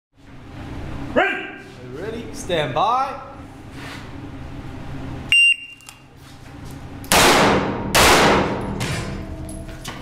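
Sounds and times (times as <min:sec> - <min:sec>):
shot timer beep: 0:05.3 - 0:05.9
pistol shots ringing: 0:07.1 - 0:08.8.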